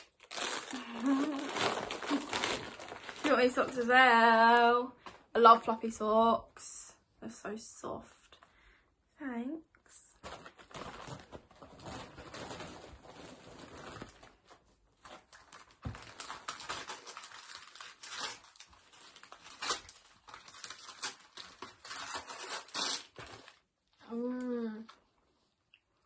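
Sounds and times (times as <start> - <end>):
wrapping paper tearing and crumpling: 0.0 - 4.1, 10.0 - 23.7.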